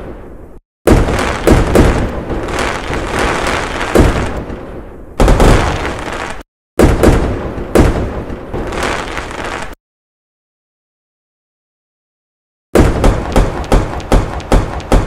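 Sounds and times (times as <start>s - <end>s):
fireworks bangs: 0.0s - 9.8s, 12.8s - 15.0s.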